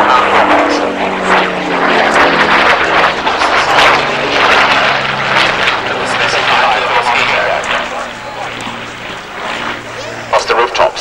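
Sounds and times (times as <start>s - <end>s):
aircraft engines flying by: 0.0s - 11.0s
propeller noise: 0.0s - 11.0s.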